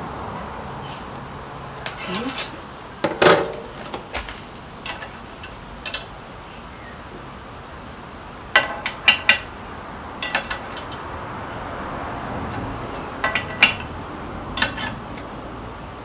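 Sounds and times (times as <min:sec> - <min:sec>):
steel clinking against metal vise: 0:10.2 - 0:11.0, 0:14.6 - 0:15.2.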